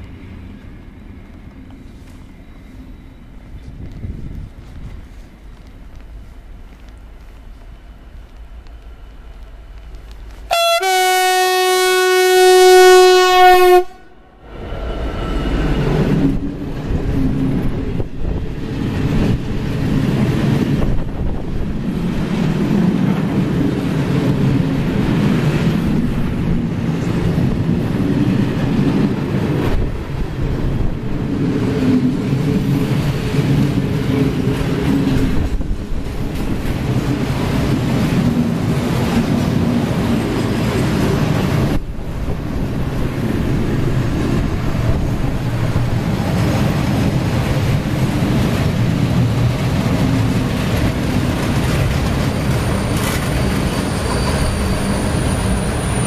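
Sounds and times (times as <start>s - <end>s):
locomotive horn blast: 10.5s - 14.2s
train wheel clatter: 15.3s - 56.0s.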